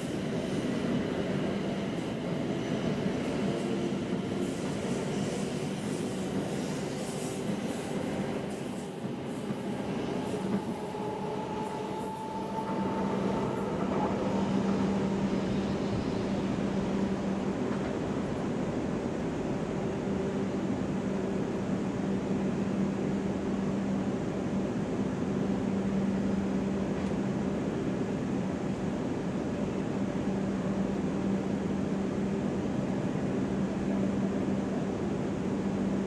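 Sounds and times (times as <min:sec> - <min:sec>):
train wheels rumbling: 0:00.0 - 0:20.4
faint high whine: 0:00.0 - 0:36.0.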